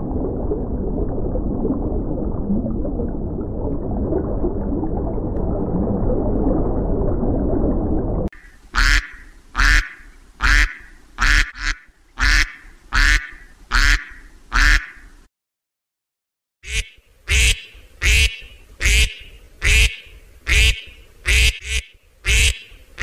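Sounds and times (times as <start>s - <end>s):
churning water: 0.0s - 10.8s
duck quacking: 8.4s - 15.1s, 16.6s - 23.0s.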